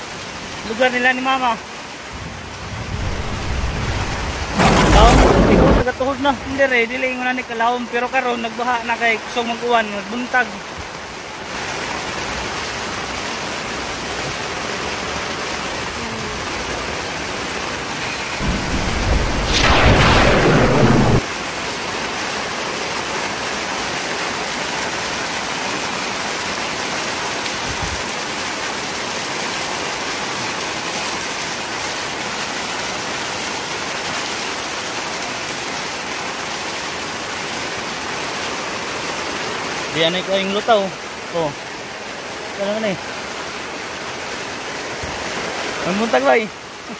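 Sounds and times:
heavy rain pouring: 0:00.0 - 0:46.9
thunderclap: 0:02.1 - 0:05.9, 0:18.4 - 0:21.3.

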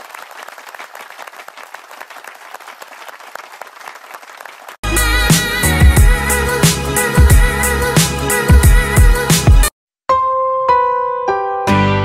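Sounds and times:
applause: 0:00.0 - 0:04.8
loud music with a beat: 0:04.8 - 0:09.7.

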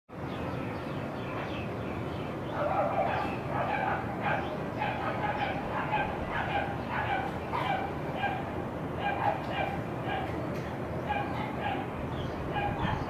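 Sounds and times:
dog yapping: 0:02.6 - 0:10.4, 0:11.1 - 0:11.9, 0:12.5 - 0:13.0.

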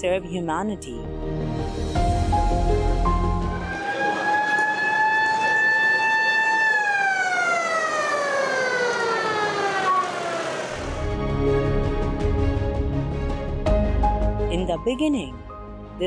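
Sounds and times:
ambulance siren wailing: 0:03.1 - 0:11.2.

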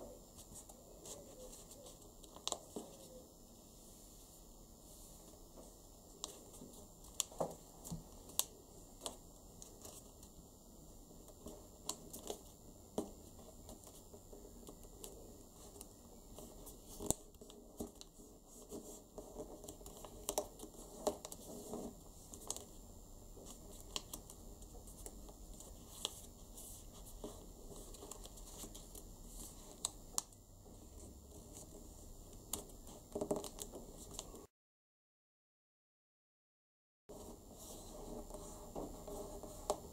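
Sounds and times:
paper crinkling as folded: 0:14.6 - 0:22.8, 0:23.4 - 0:31.8, 0:32.5 - 0:34.5.

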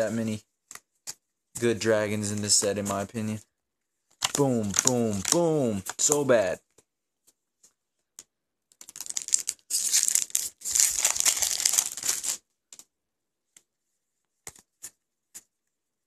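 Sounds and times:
foil wrapper crinkling: 0:04.2 - 0:06.2, 0:08.8 - 0:12.4.

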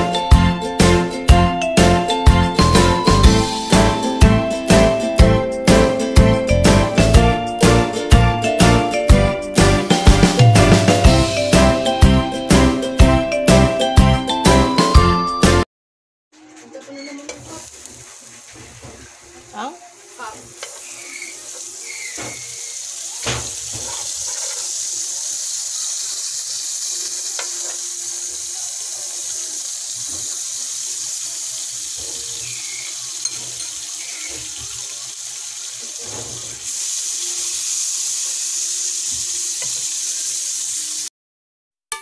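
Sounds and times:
butter sizzling in a frying pan: 0:17.3 - 0:41.1.

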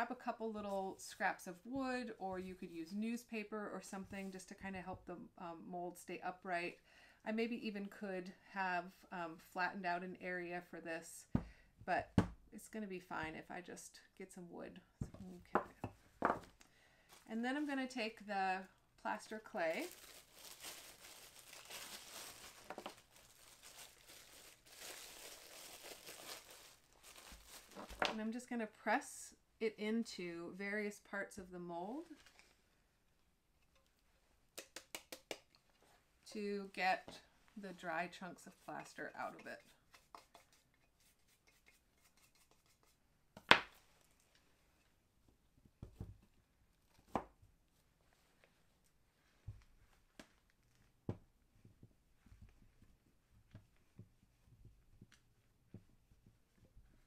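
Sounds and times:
plastic bag crinkling: 0:19.4 - 0:28.2
soft thumps of handling clay: 0:45.3 - 0:46.3.

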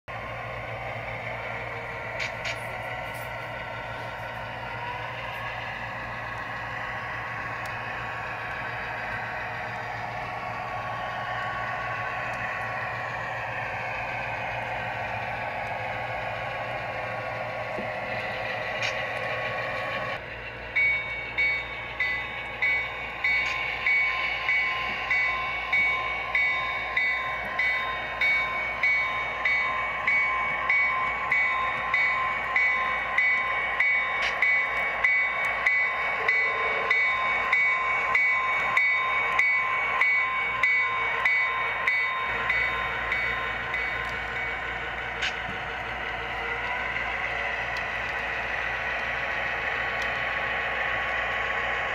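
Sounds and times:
bell ringing: 0:20.7 - 0:44.8.

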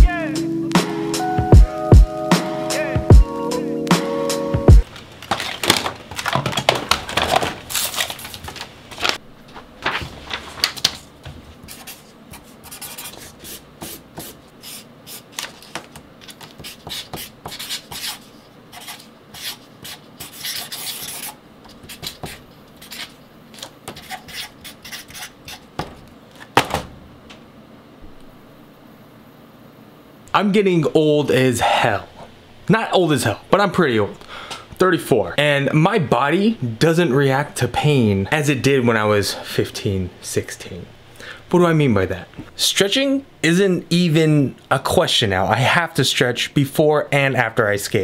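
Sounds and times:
marker pen scribbling on paper: 0:11.6 - 0:25.7.

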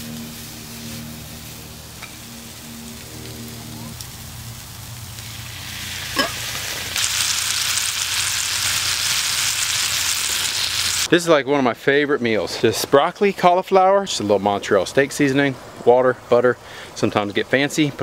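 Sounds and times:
frying pan sizzling: 0:00.0 - 0:11.1.

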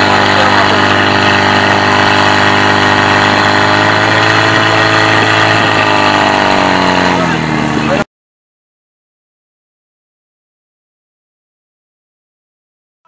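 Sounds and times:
fire pump engine droning: 0:00.0 - 0:08.0
water spraying from hoses: 0:00.0 - 0:08.0.

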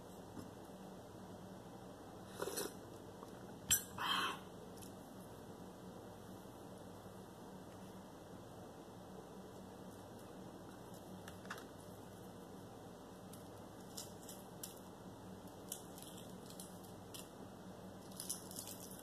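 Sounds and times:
steady low hum: 0:00.0 - 0:19.0
egg shell cracking and peeling: 0:13.2 - 0:17.4, 0:18.0 - 0:19.0.

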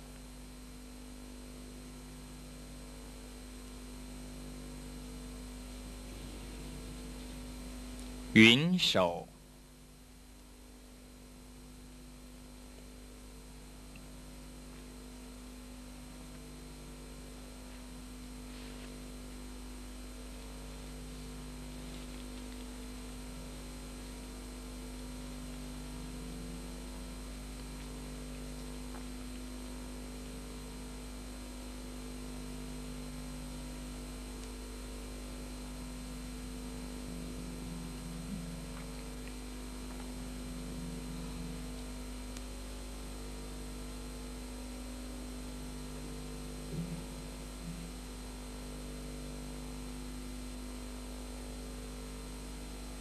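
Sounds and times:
electrical mains hum: 0:00.0 - 0:53.0
recording hiss: 0:08.4 - 0:09.3.

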